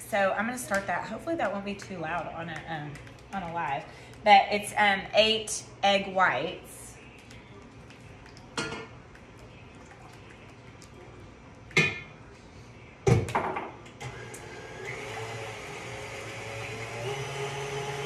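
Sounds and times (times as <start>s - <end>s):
stand mixer motor whirring: 14.0s - 18.0s.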